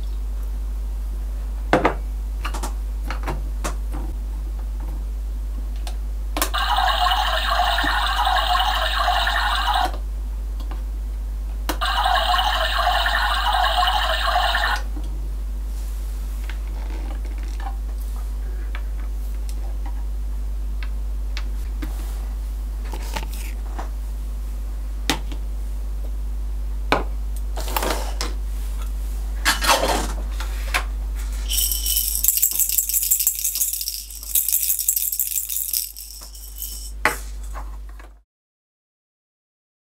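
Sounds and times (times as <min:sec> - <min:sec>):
plastic toy dishes clattering: 0:31.5 - 0:36.9.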